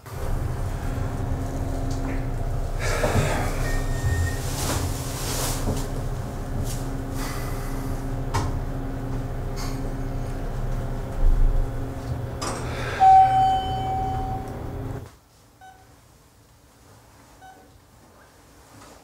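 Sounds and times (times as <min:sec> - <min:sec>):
elevator humming: 0:00.0 - 0:15.1
elevator chime: 0:00.1 - 0:06.6, 0:12.5 - 0:15.0
faint electronic beep: 0:13.0 - 0:14.5.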